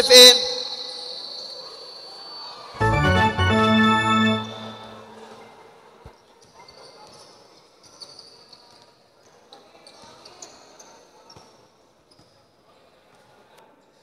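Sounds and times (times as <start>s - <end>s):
electronic organ-like tone: 2.8s - 5.4s
hall noise: 2.8s - 5.4s.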